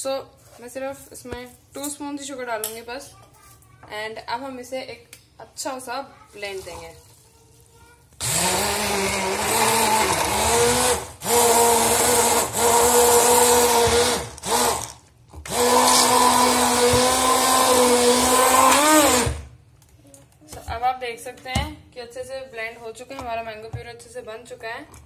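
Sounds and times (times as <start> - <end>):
immersion blender running: 8.2 - 19.5.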